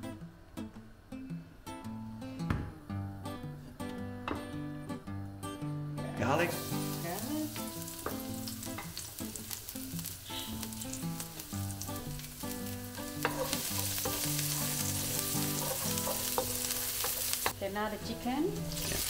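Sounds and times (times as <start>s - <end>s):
garlic sizzling in hot oil: 6.3s - 19.0s.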